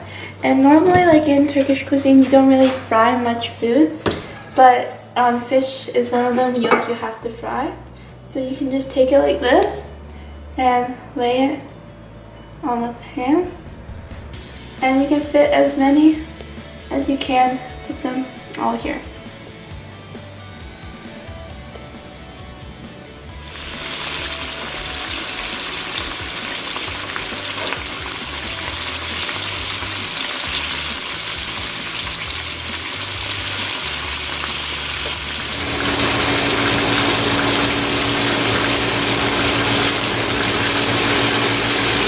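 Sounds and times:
steady low hum: 9.8 - 18.4
fish sizzling in frying pan: 23.4 - 42.0.

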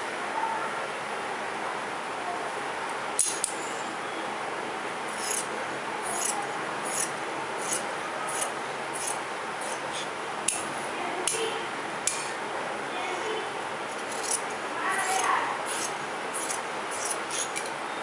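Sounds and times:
scissors cutting cloth: 5.1 - 5.5, 6.1 - 10.6, 14.0 - 17.7
scissor blades clicking: 5.2 - 5.5, 6.1 - 10.6, 14.0 - 17.7.

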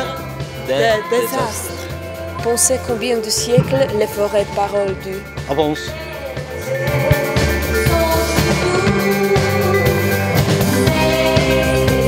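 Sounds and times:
drum kit beat: 3.4 - 6.0, 6.9 - 9.6.

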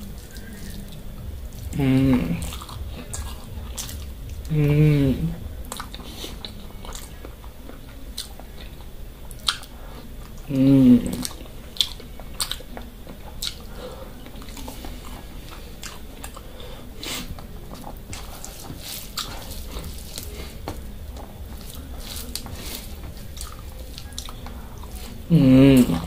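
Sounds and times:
person humming: 0.0 - 3.1, 4.4 - 5.6, 10.5 - 11.2, 25.1 - 26.0
person chewing: 0.0 - 26.0.

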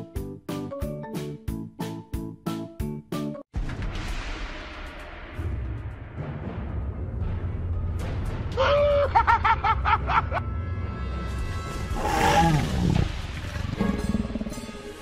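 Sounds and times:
background music with low drone: 0.0 - 15.0
falling growl-like cry: 11.9 - 13.2.

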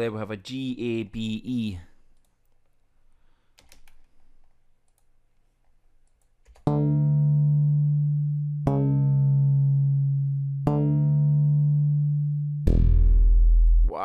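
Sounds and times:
deep synth bass notes: 6.7 - 14.0.

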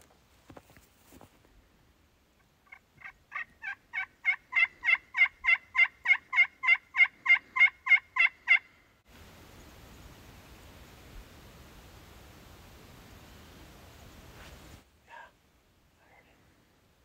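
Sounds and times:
turkey box call yelps: 2.7 - 8.7.

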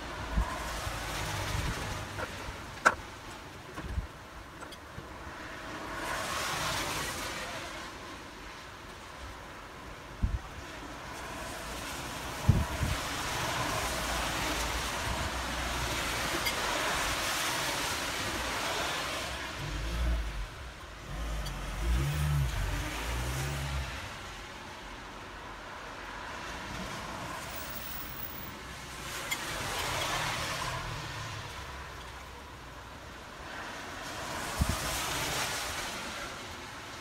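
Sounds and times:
cars passing on wet road: 0.0 - 37.0
wind buffeting microphone: 12.4 - 13.2.

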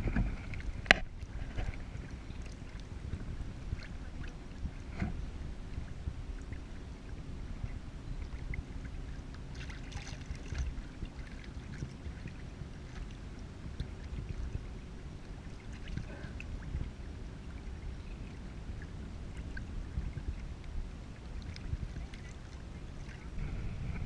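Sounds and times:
steady low rumble: 0.0 - 24.0
waves splashing against kayak hull: 8.4 - 14.5.

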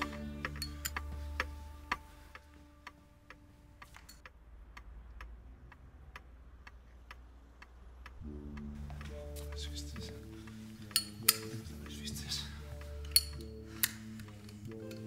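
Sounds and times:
sustained music: 0.0 - 4.3, 8.0 - 15.0
low steady hum: 0.0 - 15.0
pendulum clock ticking: 0.0 - 15.0.

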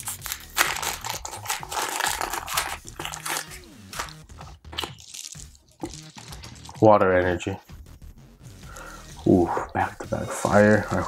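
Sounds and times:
foil pack crinkling and tearing: 0.0 - 4.1, 4.8 - 6.8.

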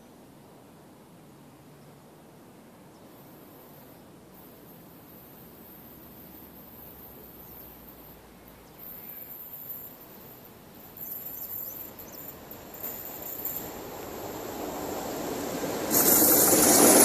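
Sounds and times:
high insect trill: 3.6 - 17.0
train rumble: 4.4 - 17.0.

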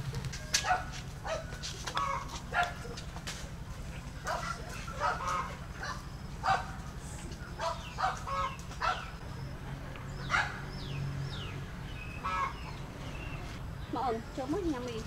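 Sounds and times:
sharp animal calls: 7.6 - 9.2, 12.1 - 12.8.

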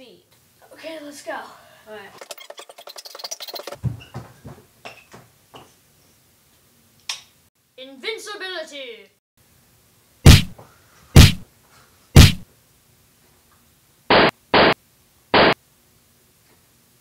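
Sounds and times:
loud punch-like whacks: 10.3 - 10.6, 11.2 - 11.4, 12.2 - 12.4, 14.1 - 14.8, 15.4 - 15.6.

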